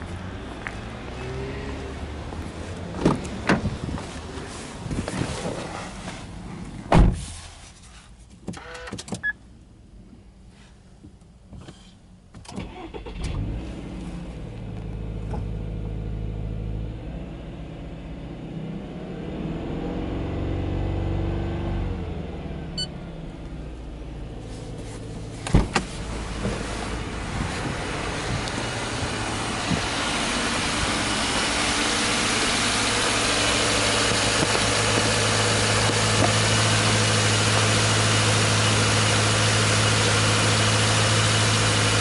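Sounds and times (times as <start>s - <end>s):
car engine starting and idling: 11.3s - 42.0s.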